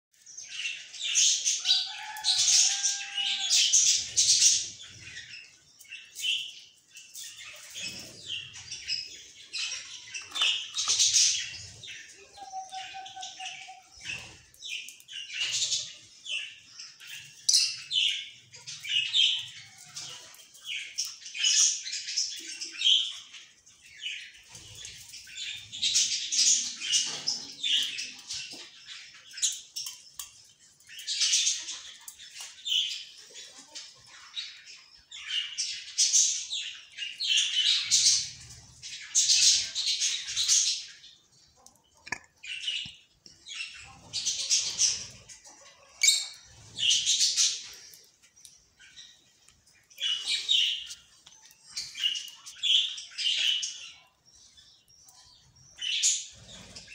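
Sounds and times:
lovebirds chirping shrilly: 0.4s - 30.0s, 42.4s - 54.1s, 55.0s - 56.9s.

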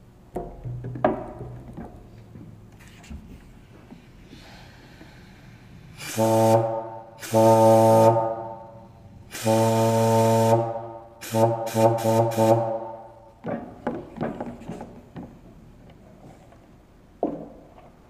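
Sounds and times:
air horn honking: 6.0s - 13.3s.

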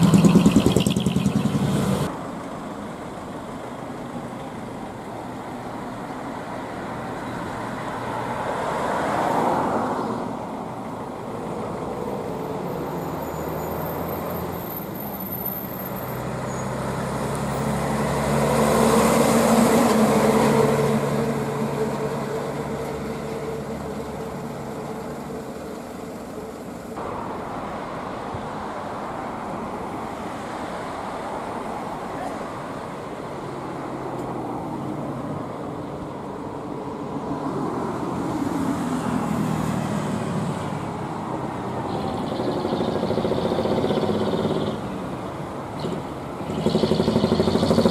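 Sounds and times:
diesel truck driving past: 0.0s - 29.4s
road traffic noise: 0.0s - 47.9s.

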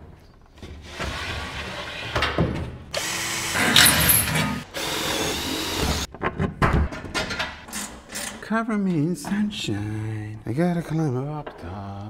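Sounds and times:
cordless drill running: 3.0s - 6.1s.

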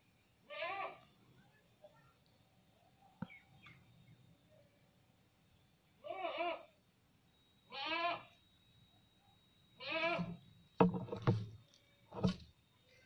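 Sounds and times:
goat bleating: 0.5s - 1.0s, 6.0s - 6.7s, 7.7s - 8.3s, 9.8s - 10.3s
short knocks: 10.2s - 11.5s.

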